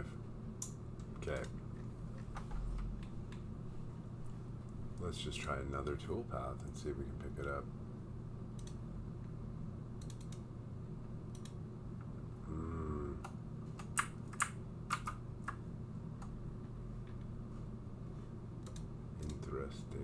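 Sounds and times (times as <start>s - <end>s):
steady low hum: 0.0s - 20.0s
keyboard and mouse clicking: 8.6s - 8.8s, 10.0s - 10.4s, 13.2s - 15.6s, 18.6s - 19.4s.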